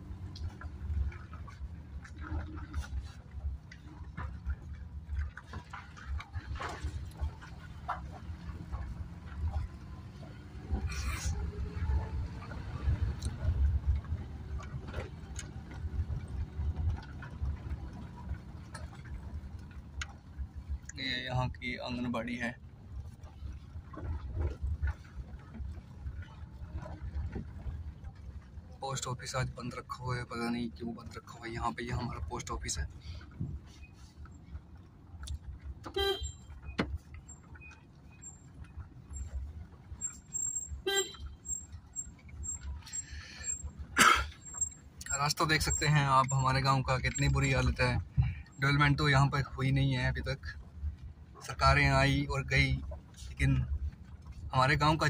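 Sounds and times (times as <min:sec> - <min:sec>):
car engine and road rumble: 0:00.0 - 0:55.0
car horn toots: 0:35.8 - 0:36.6, 0:40.8 - 0:41.6.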